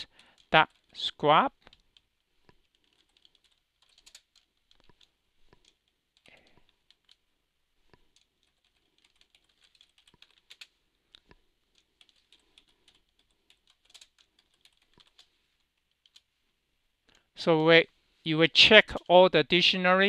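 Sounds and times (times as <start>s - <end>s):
keyboard typing: 0.0s - 1.0s, 1.6s - 7.2s, 7.9s - 16.3s.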